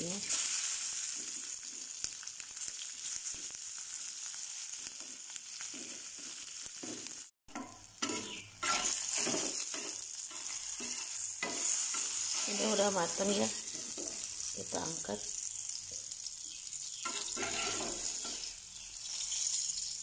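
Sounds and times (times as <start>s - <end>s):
vegetables sizzling in hot oil: 0.0s - 20.0s
metal spatula scraping a pan: 5.8s - 14.5s, 16.9s - 20.0s.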